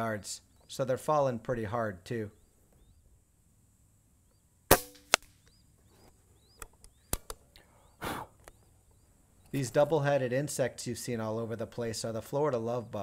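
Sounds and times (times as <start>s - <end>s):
air pistol shots: 4.7s - 5.4s.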